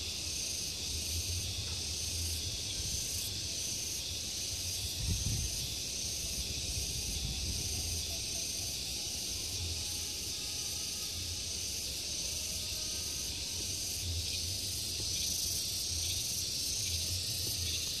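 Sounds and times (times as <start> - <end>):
insects chirring: 0.0 - 18.0.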